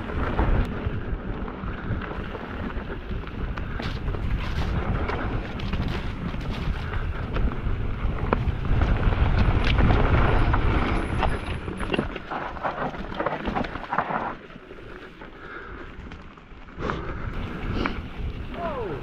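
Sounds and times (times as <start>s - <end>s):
wind buffeting microphone: 0.0s - 12.8s
bike clicking and rattling: 0.0s - 18.5s
tyres crunching over ground: 0.0s - 19.0s.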